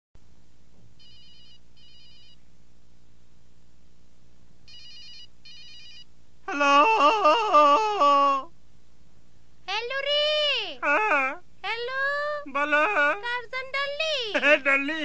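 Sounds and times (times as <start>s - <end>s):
telephone ringing: 1.0s - 2.4s, 4.7s - 6.1s.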